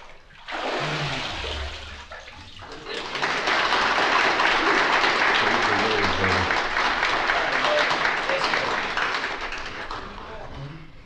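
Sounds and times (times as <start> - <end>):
water splashing and sloshing: 0.0 - 3.3
crowd applauding: 2.8 - 10.5.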